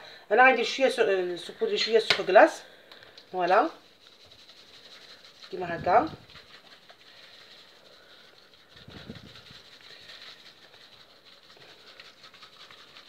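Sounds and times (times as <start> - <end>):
plastic shaker bottle shaken: 3.2 - 13.0.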